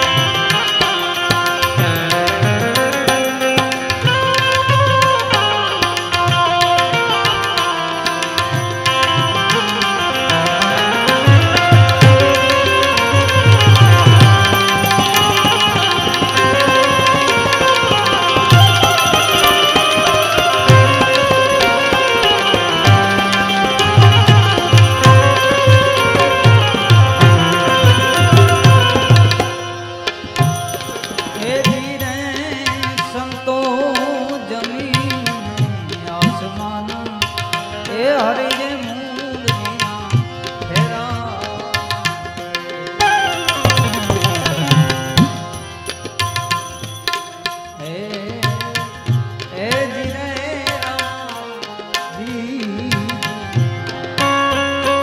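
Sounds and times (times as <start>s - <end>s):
tabla drumming: 0.0s - 55.0s
wavering melodic line: 9.2s - 32.6s.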